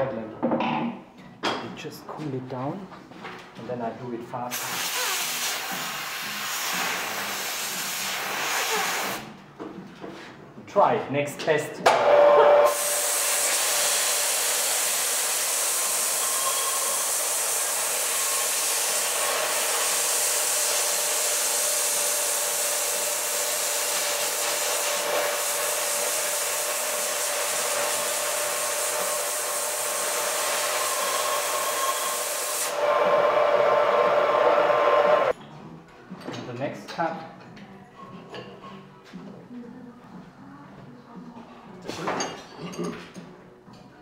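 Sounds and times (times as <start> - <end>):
compressed air blowing: 4.5 - 9.3, 12.1 - 35.3
saw blade cutting wood: 12.0 - 35.3.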